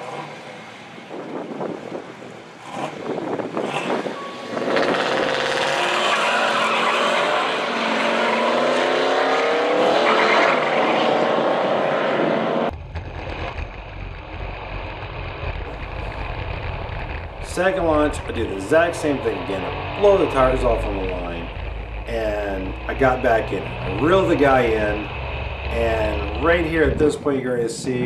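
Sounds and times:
engine at full throttle shifting: 0:00.0 - 0:27.3
wind buffeting: 0:01.0 - 0:05.5, 0:12.7 - 0:28.0
deep engine rumble: 0:12.7 - 0:28.0.

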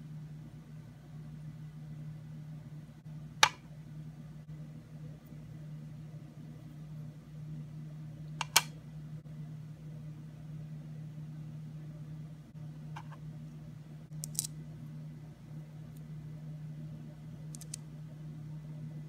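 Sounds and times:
steady low hum: 0:00.0 - 0:19.0
small plastic clicks: 0:14.2 - 0:14.5, 0:17.5 - 0:17.8.

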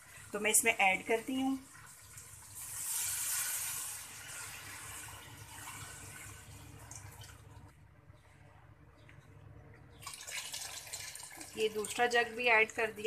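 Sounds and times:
water pouring into a pot: 0:00.0 - 0:07.7, 0:10.0 - 0:12.2.

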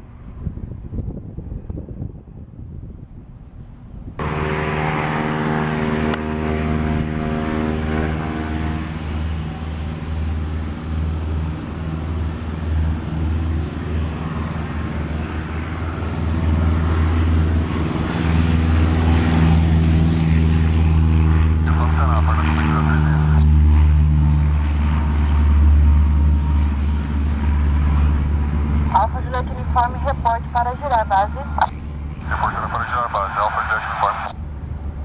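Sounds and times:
wind on microphone: 0:00.0 - 0:04.6
airplane engine and propeller drone: 0:00.0 - 0:35.0.

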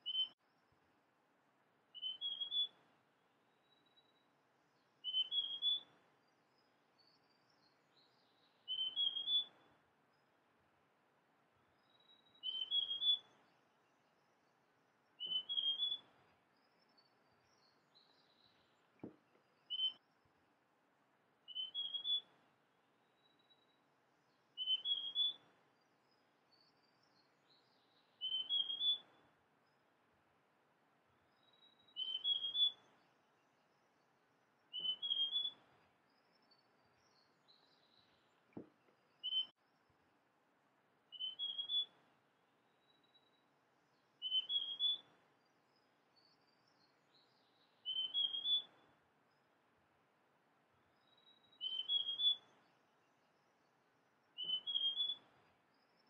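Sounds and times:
bird whistled song phrases: 0:00.0 - 0:00.4, 0:02.0 - 0:02.8, 0:05.0 - 0:05.9, 0:07.0 - 0:09.7, 0:11.8 - 0:13.4, 0:15.2 - 0:16.1, 0:19.6 - 0:20.0, 0:21.5 - 0:22.3, 0:24.6 - 0:25.5, 0:26.6 - 0:29.2, 0:31.4 - 0:33.0, 0:34.7 - 0:35.6, 0:39.2 - 0:39.6, 0:41.1 - 0:42.0, 0:44.2 - 0:45.1, 0:46.2 - 0:48.8, 0:51.0 - 0:52.7, 0:54.3 - 0:56.0
faint high chirps: 0:00.0 - 0:00.7, 0:01.9 - 0:02.8, 0:03.6 - 0:09.8, 0:11.7 - 0:20.3, 0:21.5 - 0:22.4, 0:23.1 - 0:29.8, 0:31.2 - 0:40.0, 0:41.1 - 0:49.6, 0:50.8 - 0:56.0.

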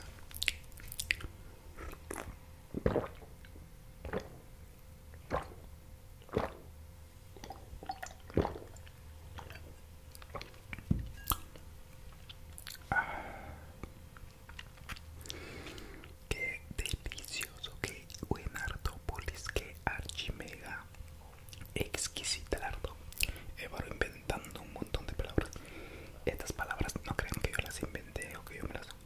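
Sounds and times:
gulps of drinking: 0:01.8 - 0:03.3, 0:06.2 - 0:06.7.

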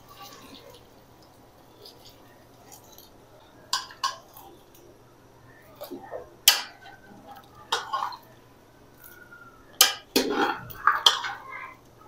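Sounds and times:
ladle clinking against pots: 0:03.7 - 0:04.4, 0:06.5 - 0:07.0, 0:07.7 - 0:08.3, 0:09.8 - 0:11.5.

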